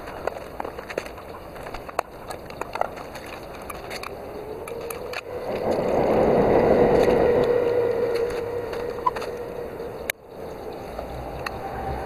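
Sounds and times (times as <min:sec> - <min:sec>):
rising ringing tone: 0:04.4 - 0:10.8.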